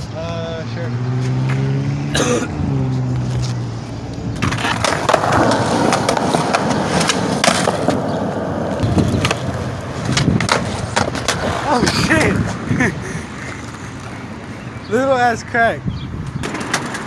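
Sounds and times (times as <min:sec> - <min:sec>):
skateboard wheels rolling on concrete: 0:00.0 - 0:17.0
skateboard clicks and knocks: 0:04.3 - 0:12.6, 0:16.4 - 0:17.0.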